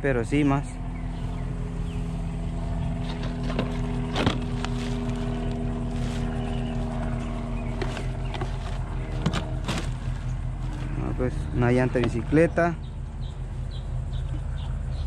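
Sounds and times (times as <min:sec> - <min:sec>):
engine idling: 0:00.0 - 0:15.0
knocks and rustles in plastic bin: 0:03.2 - 0:05.2, 0:07.7 - 0:10.9.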